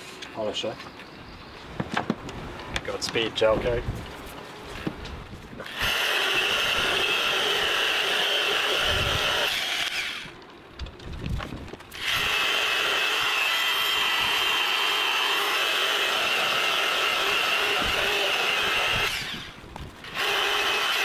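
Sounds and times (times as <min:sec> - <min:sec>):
electric polisher whining: 0:05.6 - 0:10.3, 0:11.9 - 0:21.0.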